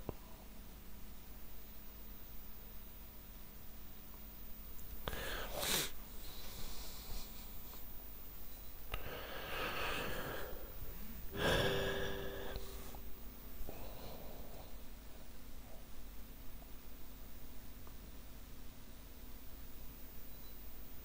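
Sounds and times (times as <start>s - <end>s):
person breathing: 5.1s - 7.9s, 8.9s - 15.8s
person sighing: 9.0s - 13.1s
person humming: 11.3s - 13.1s.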